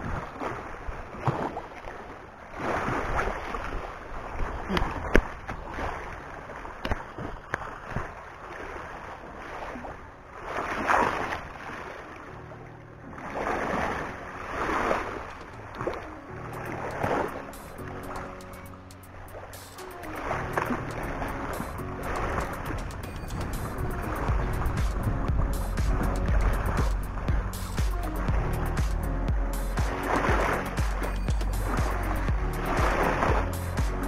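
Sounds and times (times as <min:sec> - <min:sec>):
small waves washing on rocks: 0:00.0 - 0:12.1, 0:13.2 - 0:18.2
wind buffeting microphone: 0:20.6 - 0:28.5.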